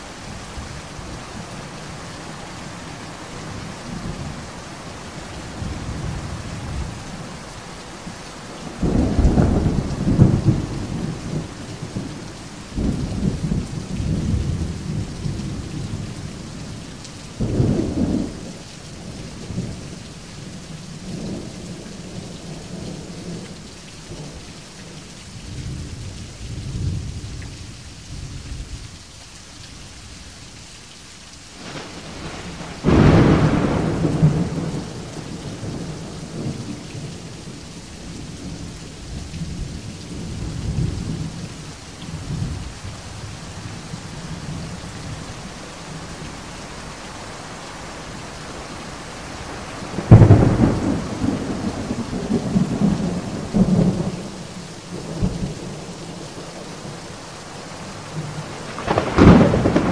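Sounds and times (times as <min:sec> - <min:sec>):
steady rain: 0:00.0 - 0:59.9
thunder rumbling: 0:08.6 - 0:12.0, 0:31.6 - 0:41.5, 0:49.4 - 0:56.8, 0:58.0 - 0:59.9.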